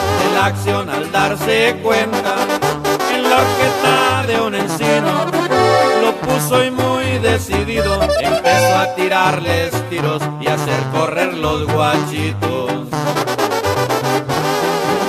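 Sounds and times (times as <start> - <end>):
bass line: 4.7 - 9.9
wind band playing melody: 5.1 - 6.3, 7.8 - 9.4.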